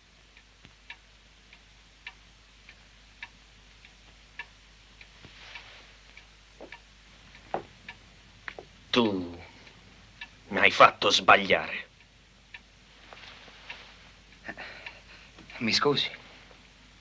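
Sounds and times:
faint clock ticking: 0.0 - 17.0.

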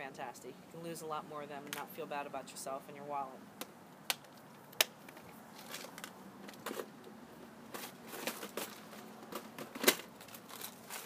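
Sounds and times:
plastic boxes rattling: 7.7 - 11.0.

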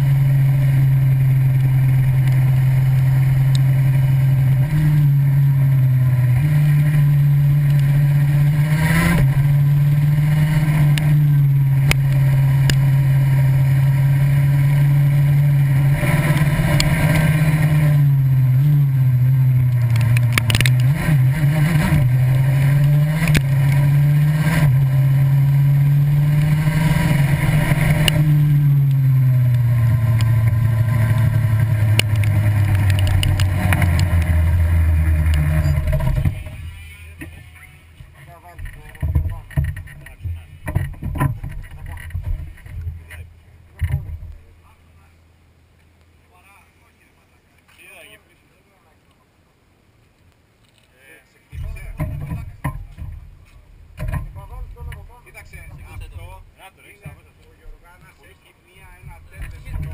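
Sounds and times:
go-kart engine running: 0.0 - 44.6, 51.6 - 59.9.

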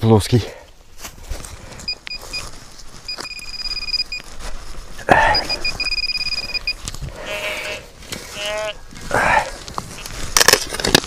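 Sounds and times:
metal detector beeping: 1.8 - 4.3, 5.1 - 6.9
loud crunching scrape: 6.9 - 11.0.

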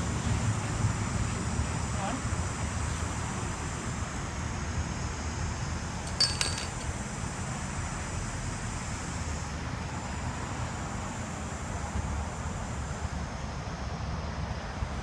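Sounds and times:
metallic clinking: 6.0 - 6.9.

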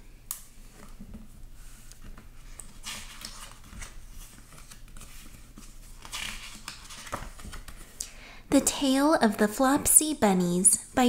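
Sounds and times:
book pages turning: 0.6 - 8.0.

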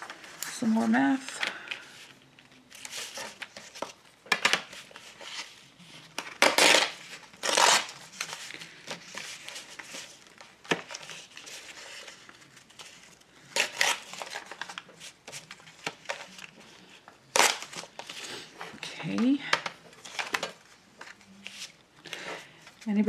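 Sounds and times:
paper ripping: 6.3 - 10.1.

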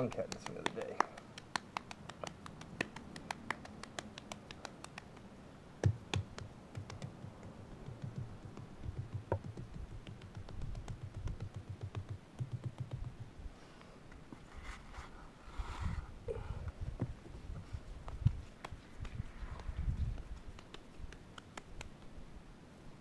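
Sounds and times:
hands patting clay: 0.0 - 13.3, 18.0 - 22.2.

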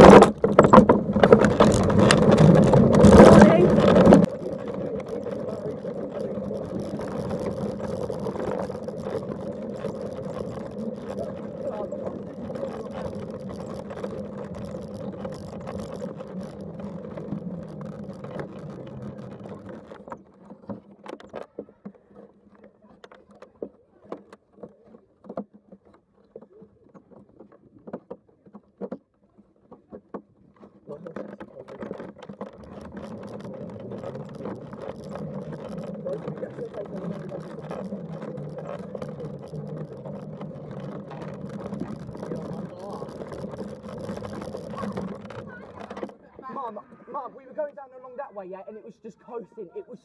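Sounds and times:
faint clicks: 29.6 - 47.8.

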